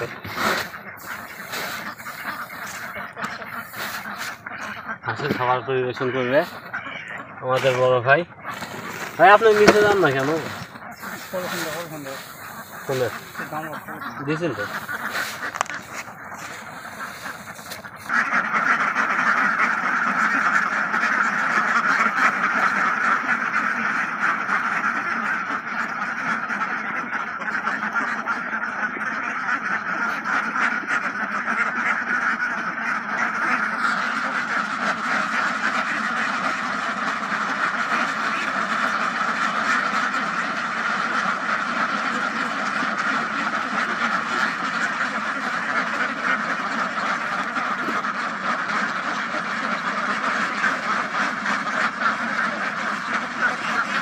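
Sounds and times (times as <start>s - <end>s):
flock of ducks quacking: 0.0s - 54.0s.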